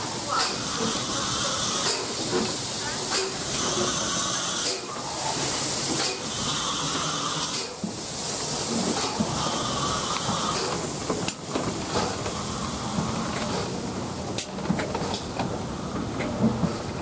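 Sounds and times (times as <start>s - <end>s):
steam locomotive hissing: 0.0s - 17.0s.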